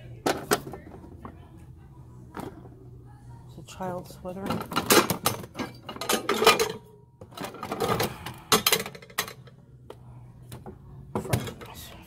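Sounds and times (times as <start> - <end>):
items knocking and clattering: 0.2 - 1.4, 4.4 - 9.5, 10.5 - 11.8.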